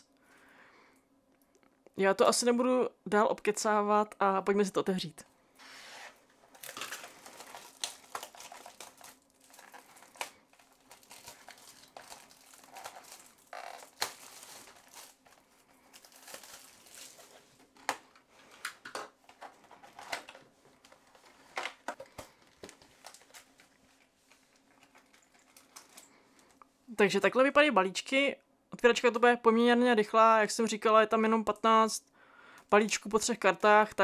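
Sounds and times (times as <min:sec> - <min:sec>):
plastic wrap crinkling and tearing: 0:05.6 - 0:26.5.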